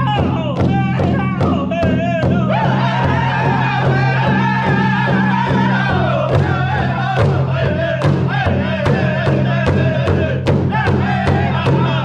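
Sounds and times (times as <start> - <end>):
large drum steady beat: 0.0 - 12.0
group singing in high voices: 2.5 - 12.0.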